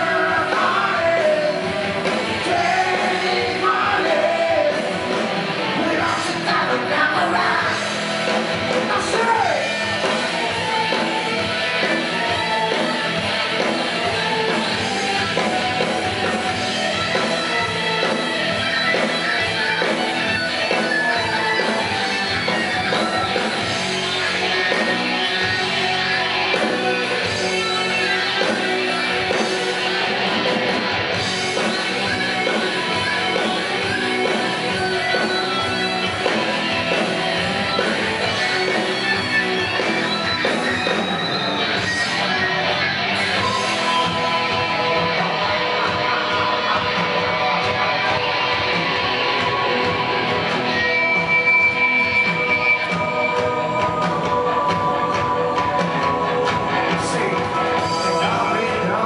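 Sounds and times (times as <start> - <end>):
person singing: 0.0 - 5.1, 5.8 - 7.9
electric guitar: 0.0 - 59.0.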